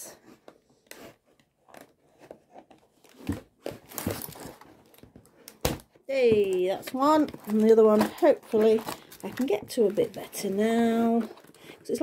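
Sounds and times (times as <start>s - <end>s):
plastic crinkling: 3.0s - 12.0s.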